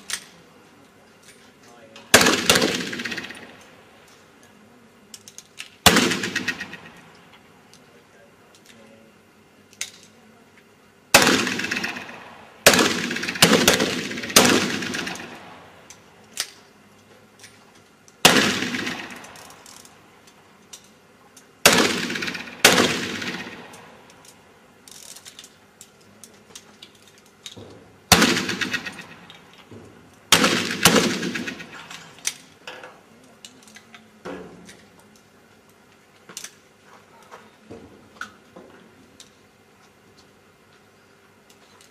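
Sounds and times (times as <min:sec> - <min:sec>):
pistol shots echoing: 0:02.1 - 0:03.6, 0:05.8 - 0:07.0, 0:11.1 - 0:15.8, 0:18.2 - 0:19.5, 0:21.6 - 0:24.0, 0:28.1 - 0:29.3, 0:30.3 - 0:32.0.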